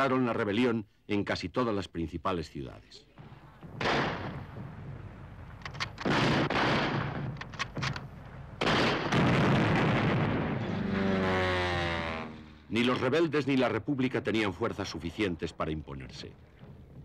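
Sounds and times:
sharp gunshots: 3.7s - 5.0s, 5.7s - 7.9s, 8.6s - 12.2s
heavy explosions: 3.7s - 11.0s.

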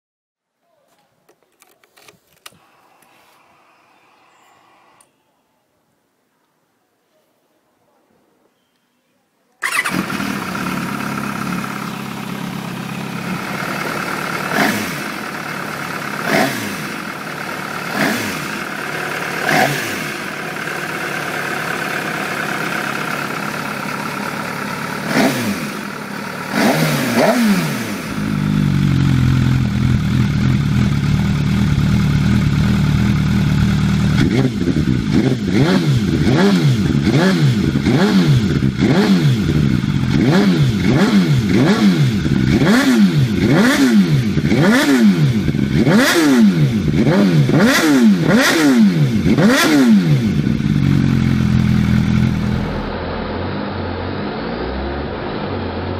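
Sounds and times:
motorcycle engine idling: 9.6s - 53.0s
motorcycle engine revving hard: 9.6s - 55.9s.

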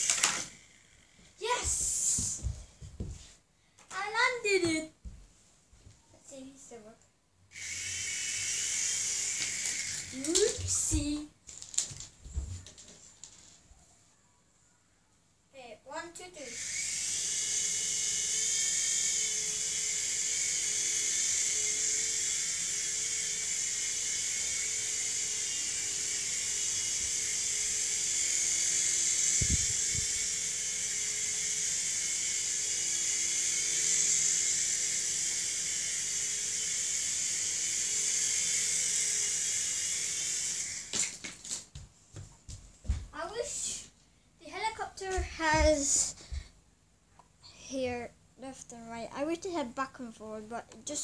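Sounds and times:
toy helicopter motor whine: 0.0s - 2.5s, 7.5s - 13.6s, 16.4s - 41.6s, 44.6s - 46.4s.

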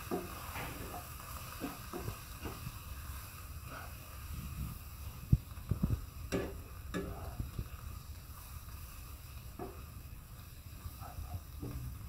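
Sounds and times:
spatula scraping wok: 0.0s - 11.6s
paste frying: 0.0s - 12.0s.

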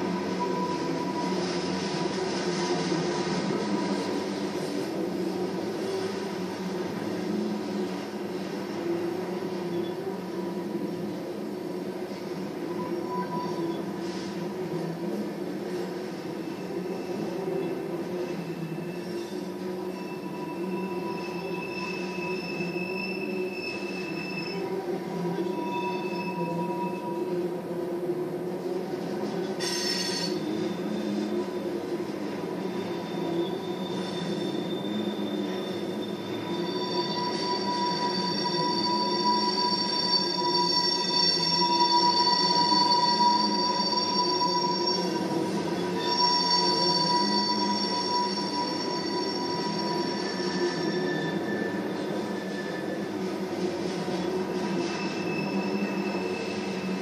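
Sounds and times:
high wheel squeal: 0.0s - 2.0s, 12.6s - 14.4s, 16.4s - 27.4s, 29.5s - 53.2s, 53.8s - 57.0s
steel wheels rumbling on rail: 0.0s - 57.0s.

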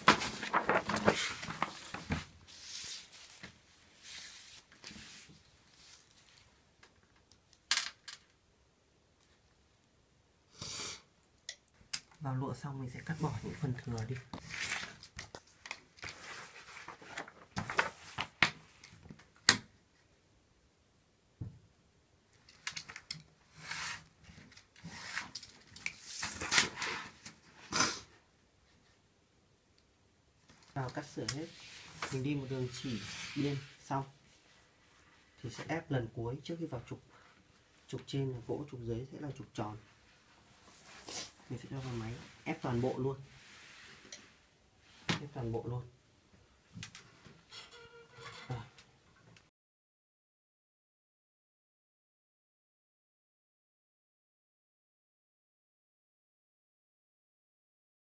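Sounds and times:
paper and silk rustling: 0.0s - 6.6s, 13.0s - 18.9s, 30.7s - 35.6s, 39.8s - 45.1s.

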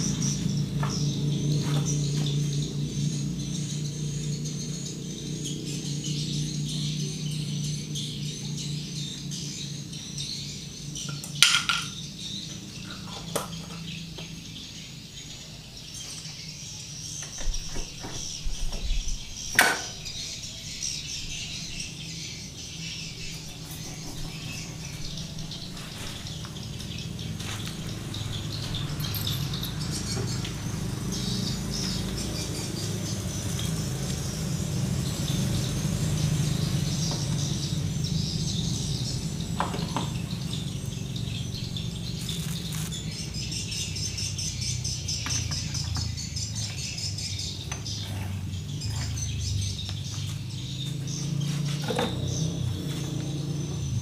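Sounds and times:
birds chirping: 0.0s - 54.0s
metal gears clinking: 28.6s - 30.2s.

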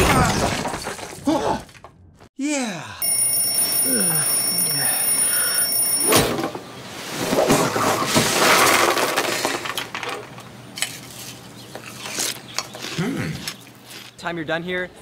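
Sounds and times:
alarm clock ringing: 3.0s - 6.4s.

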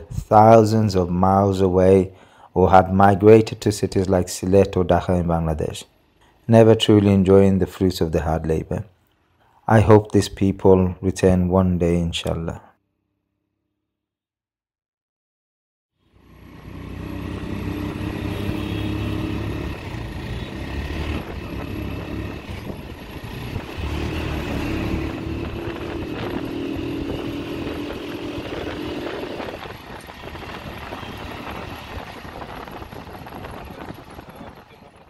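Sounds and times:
drone of traffic engines: 16.0s - 35.0s
engine hum: 16.0s - 35.0s.

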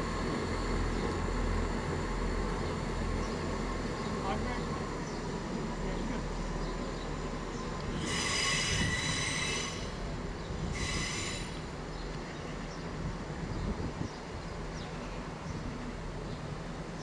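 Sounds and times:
train wheels squealing: 7.9s - 11.7s.

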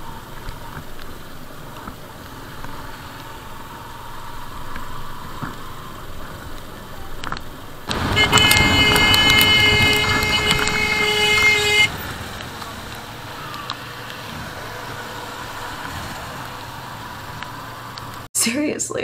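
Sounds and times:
steady rushing noise: 0.0s - 18.3s
vehicle horn blast: 7.9s - 12.1s.

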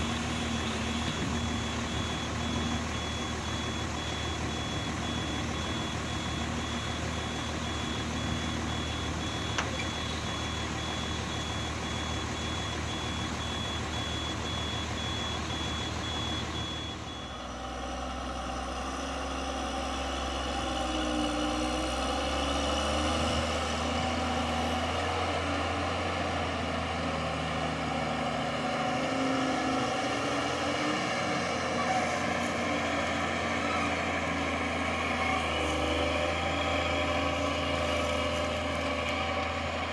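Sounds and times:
reversing alarm beeping: 0.0s - 17.9s, 27.5s - 39.9s
diesel truck engine revving: 0.0s - 39.9s.

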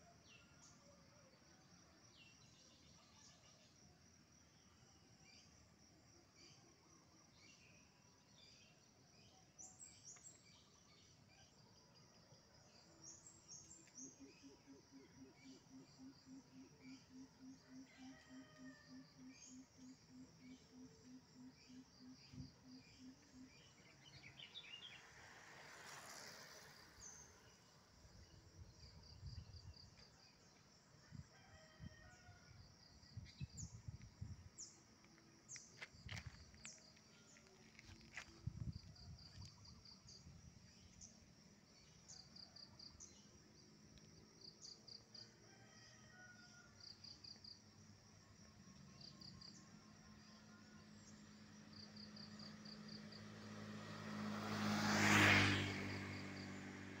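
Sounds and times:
insects chirping: 1.4s - 57.0s
motorcycle passing by: 19.3s - 31.1s, 49.5s - 57.0s.

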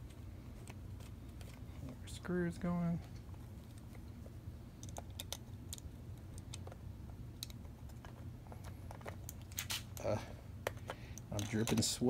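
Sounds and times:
steady low hum: 0.0s - 12.0s
screwdriver and metal parts clicking: 10.7s - 12.0s.

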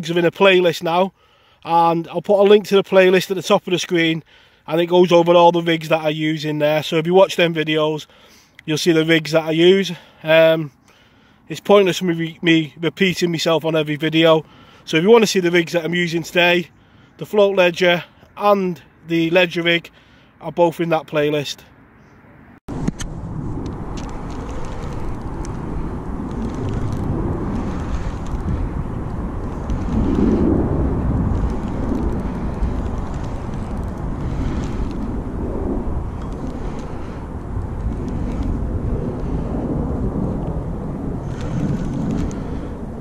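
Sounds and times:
wind buffeting microphone: 22.7s - 43.0s
faint clicks: 41.2s - 42.6s.

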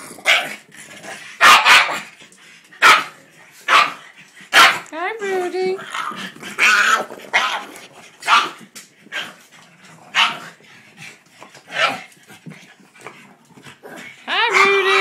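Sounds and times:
dog barking roughly: 1.4s - 2.1s, 2.8s - 3.1s, 3.7s - 4.9s, 8.2s - 8.6s, 10.1s - 10.4s, 11.7s - 12.1s.

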